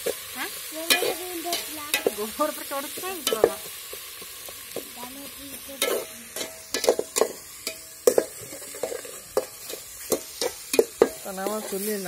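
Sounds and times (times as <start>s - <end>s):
onions sizzling in oil: 0.0s - 12.0s
spatula scraping a metal pot: 0.8s - 2.3s, 5.8s - 12.0s.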